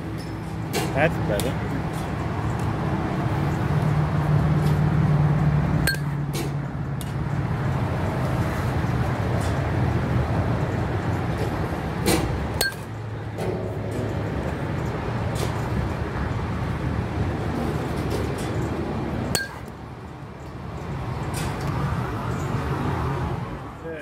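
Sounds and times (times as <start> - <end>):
metal bat hitting softball: 5.8 - 6.2, 12.1 - 13.6, 19.3 - 19.7.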